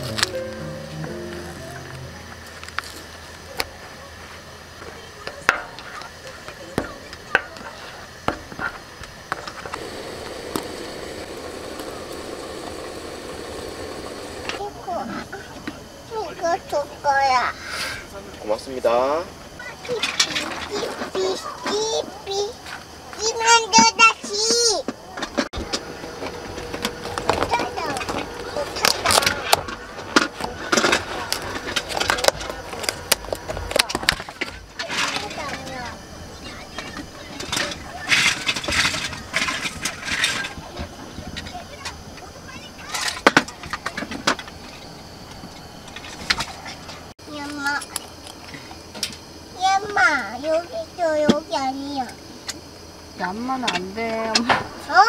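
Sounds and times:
pot boiling: 9.4 - 15.0.

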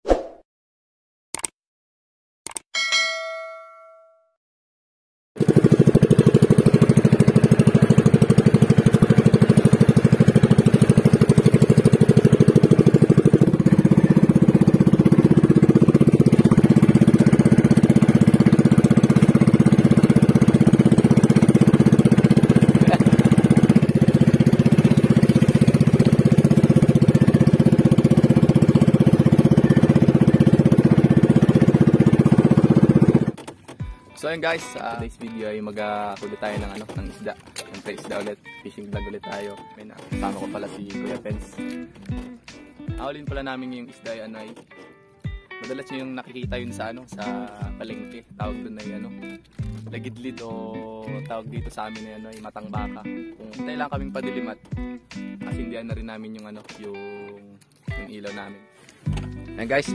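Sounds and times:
short ringing chime: 2.8 - 4.3
boat engine puttering: 5.4 - 59.9.

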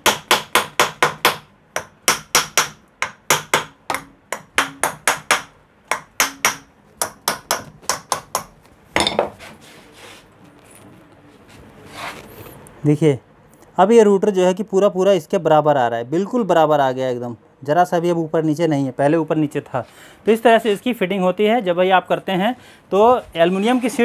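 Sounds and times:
hammer tapping on metal: 0.0 - 9.3.

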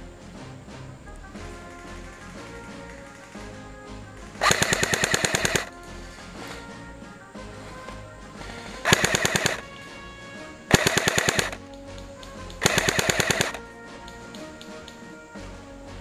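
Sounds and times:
airsoft gun full-auto bursts: 4.4 - 5.8, 8.4 - 9.9, 10.7 - 11.6, 12.6 - 13.6.

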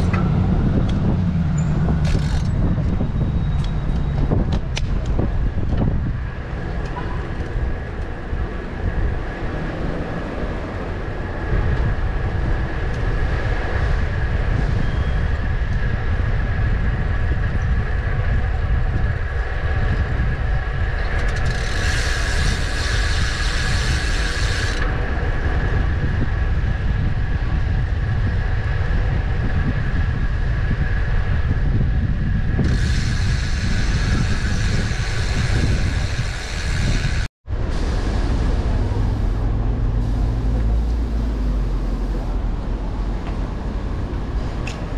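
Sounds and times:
wind rumble on microphone: 0.0 - 44.9
bicycle freewheel ticking: 21.3 - 24.8, 32.6 - 37.2.

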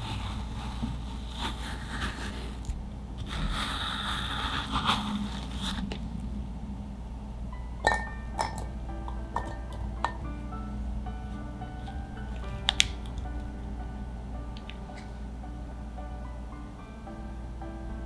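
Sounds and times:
scoop scraping frozen ice cream: 0.0 - 6.0
soft background music: 6.3 - 18.0
clinks against glass: 7.8 - 8.7, 9.4 - 10.2.

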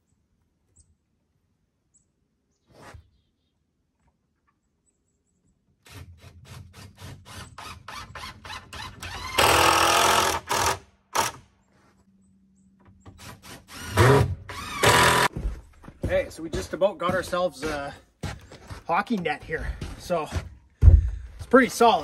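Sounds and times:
power drill driving screws into wood: 5.8 - 11.5, 13.1 - 15.3.

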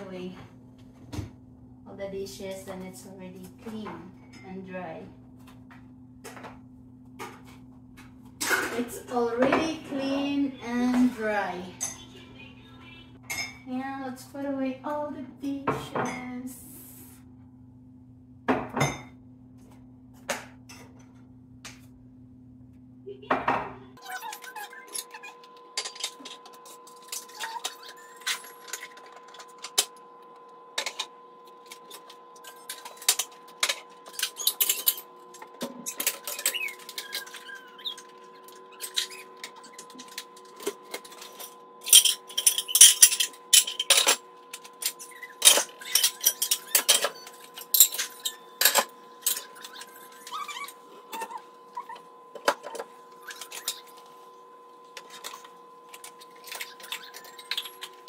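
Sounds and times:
dishes and cutlery clinking: 38.8 - 50.3.

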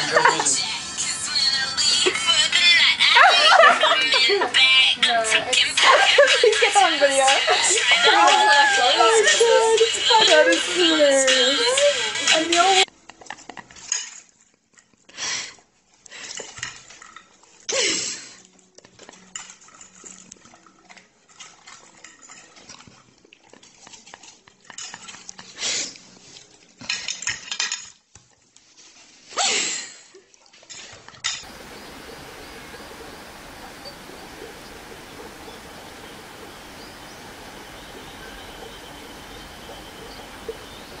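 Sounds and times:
steady hiss: 31.4 - 41.0.

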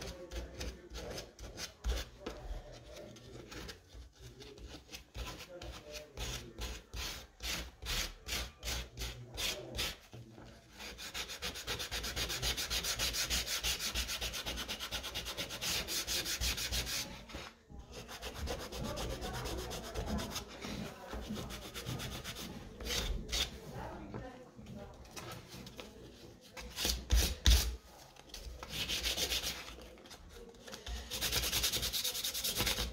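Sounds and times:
sandpaper rubbing on wood: 10.8 - 20.5, 28.7 - 29.7, 31.1 - 32.9.

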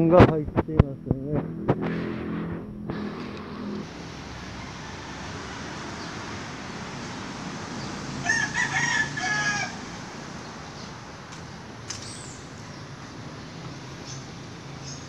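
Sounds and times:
steady background noise: 0.0 - 15.0
rooster crowing: 3.8 - 6.9, 7.5 - 10.4.

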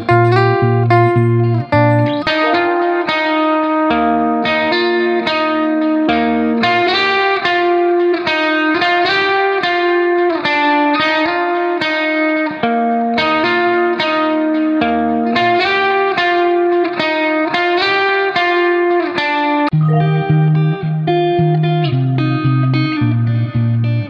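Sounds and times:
plucked instrumental melody: 0.0 - 3.8, 19.7 - 21.7.

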